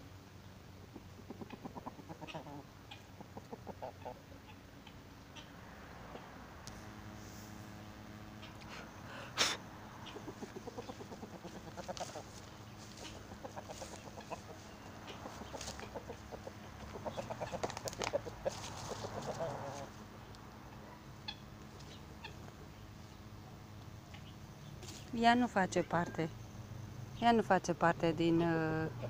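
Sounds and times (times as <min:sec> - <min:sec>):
guinea fowl clucking: 0:00.9 - 0:06.3, 0:08.4 - 0:08.7, 0:09.9 - 0:20.0, 0:20.7 - 0:22.8, 0:24.1 - 0:24.4.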